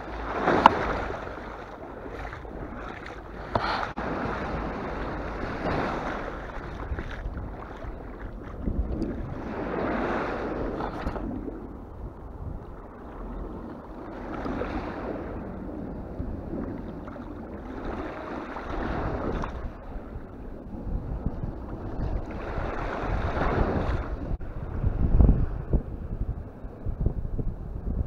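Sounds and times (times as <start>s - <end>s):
waves on a pebbly shore: 0.0s - 11.3s, 14.1s - 15.5s, 16.9s - 20.1s
wind buffeting the microphone: 0.0s - 28.0s.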